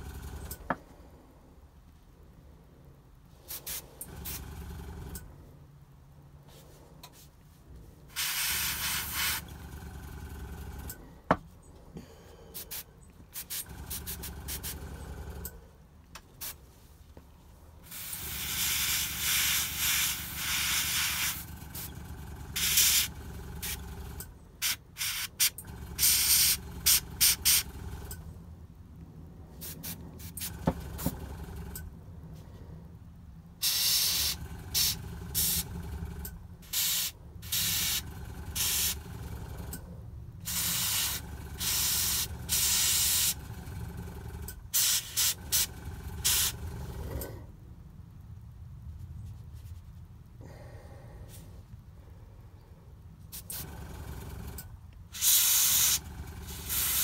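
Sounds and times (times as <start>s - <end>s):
air compressor hum: 0.0s - 1.0s, 3.3s - 5.3s, 8.0s - 15.6s, 17.8s - 28.4s, 29.4s - 31.9s, 33.6s - 39.8s, 40.4s - 47.5s, 53.2s - 57.0s
airbrush spraying hiss: 3.5s - 4.4s, 8.1s - 9.4s, 17.9s - 21.9s, 33.6s - 35.6s, 36.7s - 38.0s, 40.5s - 43.4s, 55.2s - 57.0s.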